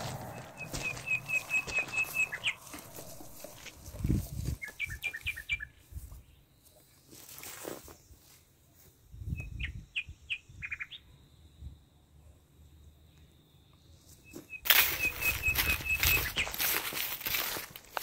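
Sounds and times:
low rumble: 0.0 - 4.2
small bird chirping: 0.3 - 3.6, 4.5 - 6.8, 9.2 - 11.2, 14.1 - 16.8.

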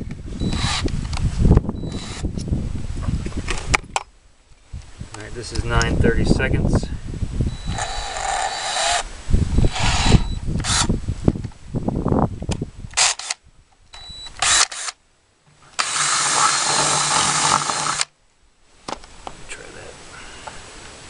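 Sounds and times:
wind buffeting microphone: 0.0 - 14.6
cordless drill boring plastic: 0.5 - 0.9, 7.7 - 9.0, 9.6 - 10.9, 15.8 - 18.1.

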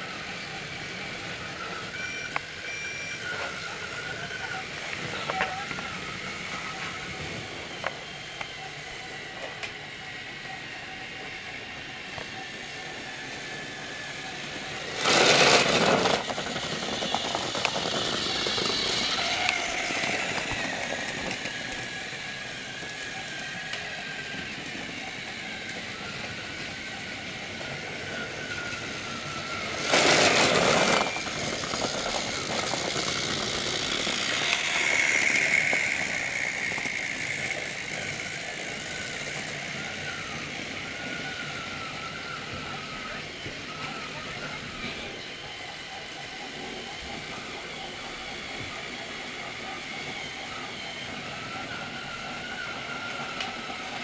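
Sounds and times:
toy train motor whining: 0.0 - 54.0
loud bursts of noise: 9.9 - 49.4.

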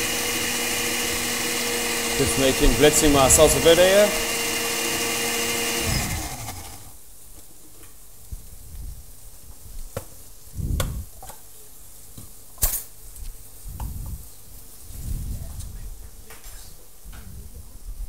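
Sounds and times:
blender whirring: 0.0 - 7.0.

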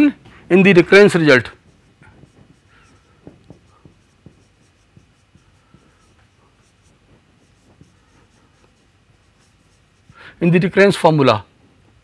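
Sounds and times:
marker writing on whiteboard: 0.7 - 10.9.

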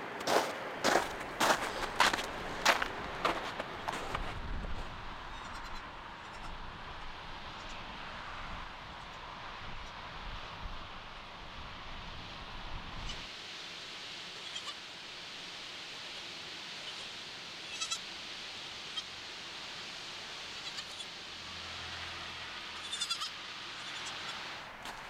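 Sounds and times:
steady hiss: 1.7 - 25.0
goat kid bleating: 5.3 - 6.6, 14.4 - 14.8, 17.6 - 18.0, 20.6 - 21.1, 22.8 - 24.3.

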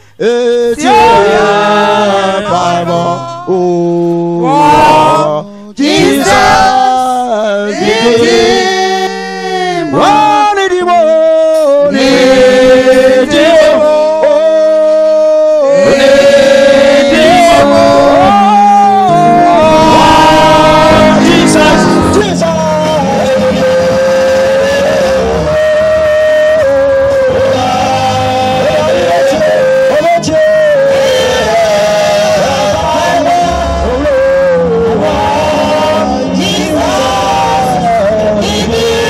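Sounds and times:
man singing: 0.0 - 39.0
women singing: 4.6 - 10.0.

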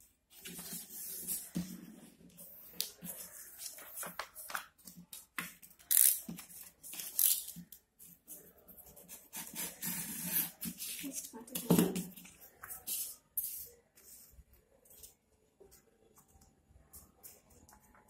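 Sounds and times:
paper rustling: 2.4 - 5.4.

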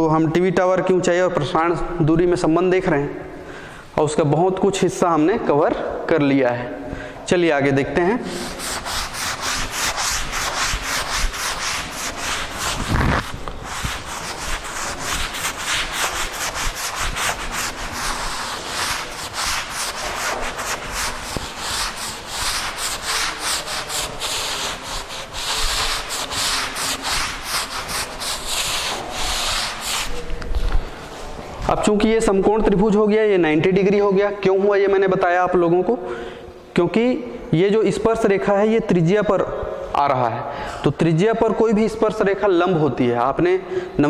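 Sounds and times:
duster rubbing blackboard: 8.1 - 30.9.

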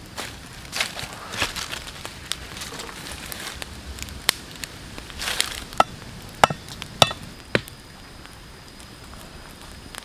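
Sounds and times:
machete chopping wooden stick: 5.8 - 7.7.

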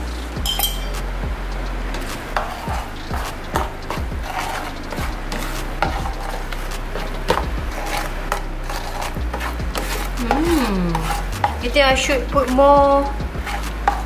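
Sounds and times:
spatula scraping a frying pan: 2.1 - 14.0.

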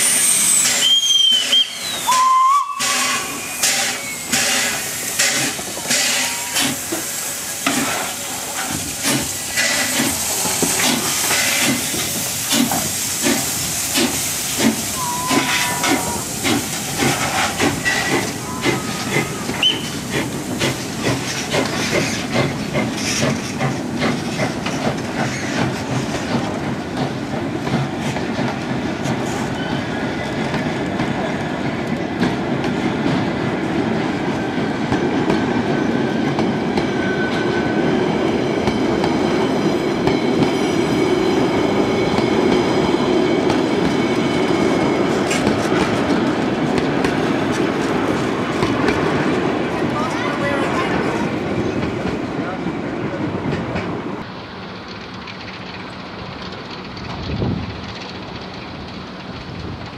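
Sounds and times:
hiss of steam: 0.0 - 27.2
steam locomotive chuffing: 0.0 - 59.9
wheels clacking over rail joints: 2.8 - 52.6, 53.4 - 59.9.

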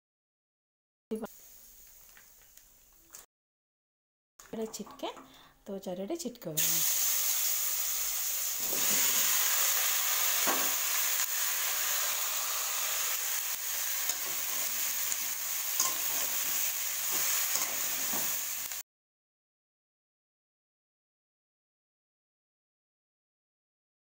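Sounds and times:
vegetables sizzling in hot oil: 1.2 - 3.2, 6.6 - 18.8.

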